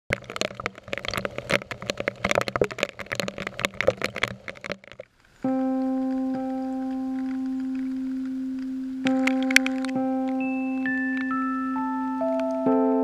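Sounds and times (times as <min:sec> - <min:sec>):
crackling clicks: 0:00.1 - 0:12.8
low steady hum: 0:00.1 - 0:13.0
ringing musical tone: 0:05.4 - 0:13.0.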